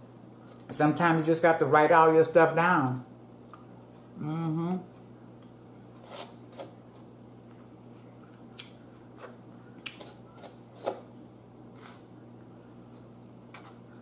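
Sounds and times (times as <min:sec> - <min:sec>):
low steady hum: 0:00.0 - 0:14.0
fork scraping styrofoam container: 0:06.0 - 0:06.8, 0:10.0 - 0:11.1, 0:11.7 - 0:12.0, 0:13.5 - 0:13.8.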